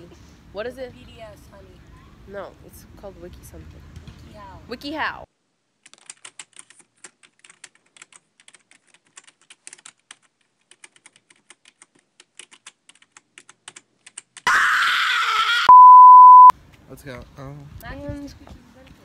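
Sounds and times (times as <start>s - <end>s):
keyboard typing: 5.8s - 14.4s
steady beep: 15.7s - 16.5s.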